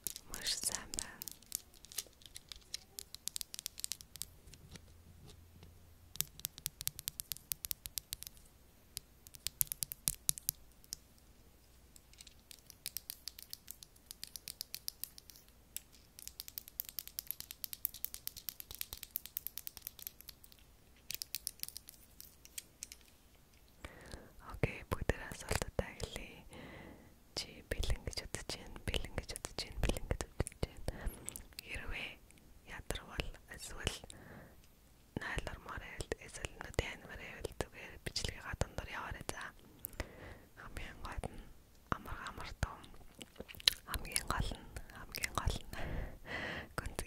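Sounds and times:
plastic pens clicking and tapping: 0.0 - 4.9, 6.1 - 11.2, 11.9 - 23.1, 42.0 - 45.8.

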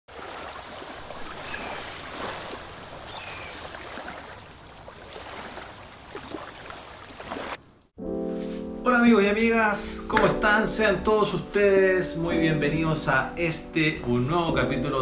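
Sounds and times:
rushing water: 0.1 - 7.9.

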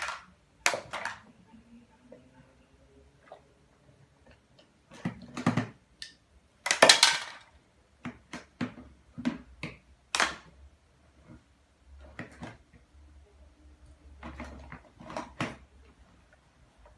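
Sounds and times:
plastic toys clicking and knocking: 0.0 - 1.3, 4.9 - 10.5.

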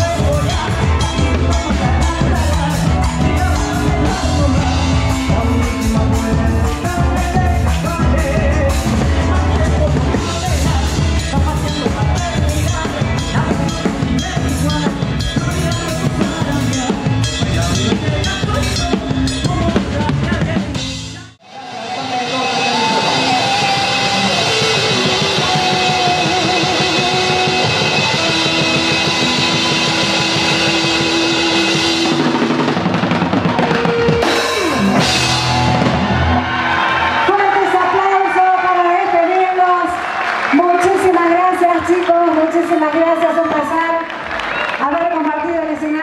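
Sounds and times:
drum kit beat: 0.0 - 21.4, 22.0 - 37.9
live band playing: 0.0 - 46.0
crowd cheering and clapping: 21.4 - 46.0.

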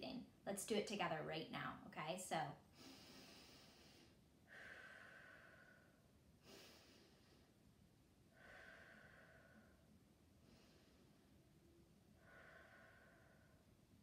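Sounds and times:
woman breathing slowly: 2.7 - 14.0.

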